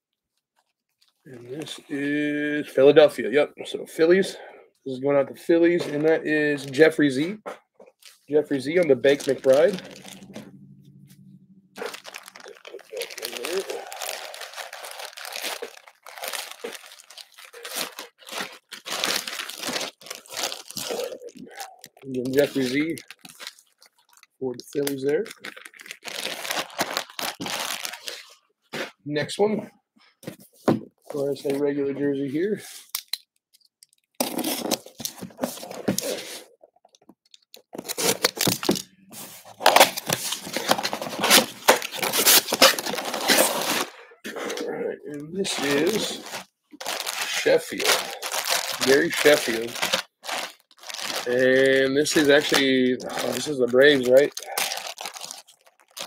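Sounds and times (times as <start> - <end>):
plastic bag crinkling: 8.0 - 28.4, 37.3 - 56.0
tape tearing: 8.8 - 10.4, 11.8 - 21.3, 22.1 - 23.6, 34.2 - 36.4, 37.8 - 43.9, 45.4 - 56.0
box pulled open rustling: 39.1 - 43.9.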